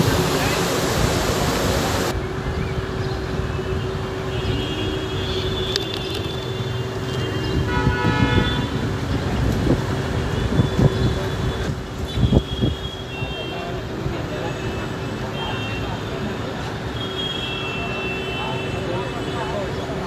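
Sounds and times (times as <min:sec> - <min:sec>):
rumble of passing vehicles: 0:00.0 - 0:17.1
steady traffic hum: 0:00.0 - 0:20.0
vehicle horns honking: 0:03.8 - 0:08.9, 0:10.2 - 0:13.8, 0:16.8 - 0:19.6.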